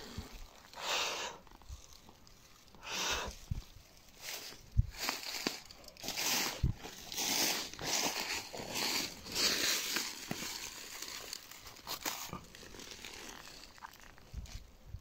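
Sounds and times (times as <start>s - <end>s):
brushing against undergrowth: 0.0s - 14.7s
footsteps crunching dry leaves: 3.6s - 14.3s.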